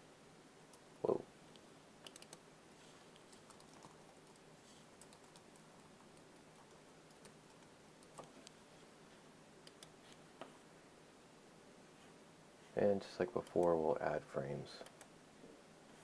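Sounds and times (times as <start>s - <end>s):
faint keyboard typing: 1.5s - 8.6s, 9.6s - 10.5s, 13.2s - 13.9s, 14.7s - 15.2s.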